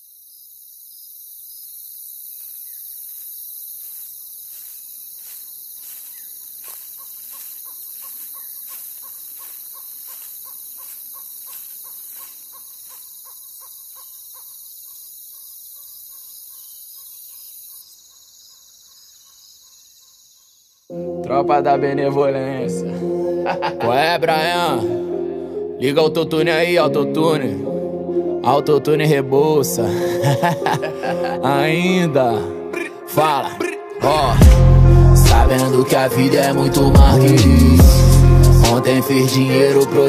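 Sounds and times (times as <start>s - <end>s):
high cricket-like chirring: 0.0s - 21.0s.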